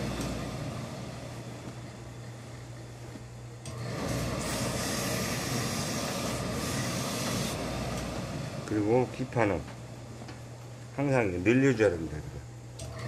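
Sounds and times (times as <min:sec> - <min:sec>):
steam iron hissing: 0:03.7 - 0:08.5.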